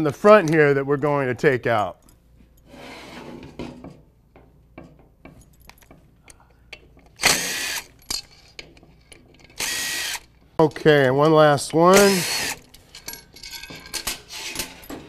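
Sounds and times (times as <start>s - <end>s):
cordless drill spinning: 7.2s - 7.9s, 9.6s - 10.3s, 11.9s - 12.7s.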